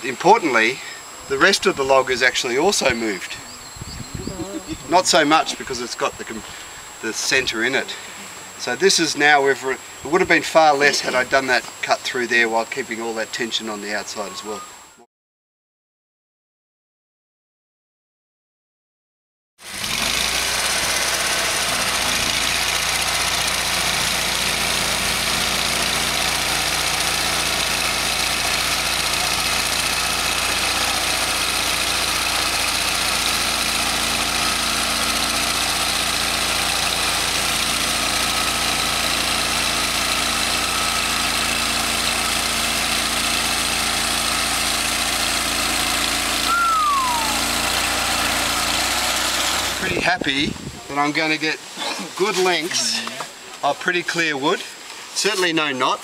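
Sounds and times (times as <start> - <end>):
sawmill engine running: 4.5 - 9.6, 19.6 - 50.2.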